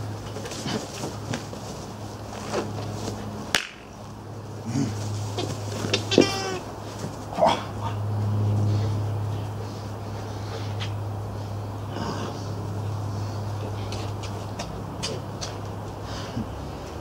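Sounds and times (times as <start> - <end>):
scuffling: 0.0 - 3.3, 4.5 - 7.8
steady low hum: 0.0 - 17.0
puppy crying: 5.9 - 6.7.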